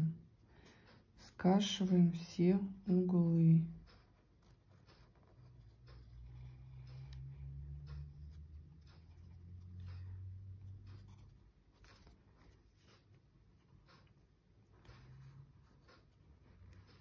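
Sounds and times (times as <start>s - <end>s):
pencil scratching on paper: 3.9s - 17.0s.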